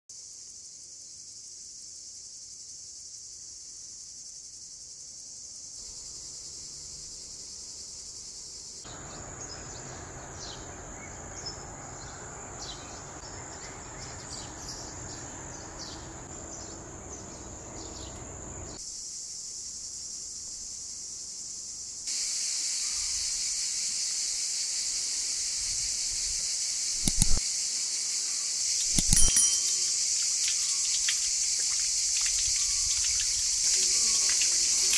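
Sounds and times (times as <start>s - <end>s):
crickets chirring: 0.1s - 34.9s
short bird chirps: 28.8s - 31.3s.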